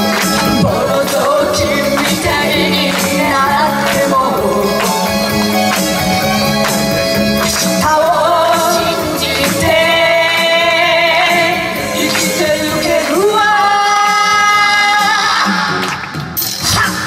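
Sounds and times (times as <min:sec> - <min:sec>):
women singing into microphones: 0:00.0 - 0:05.2, 0:07.8 - 0:15.8
pop backing track: 0:00.0 - 0:17.0.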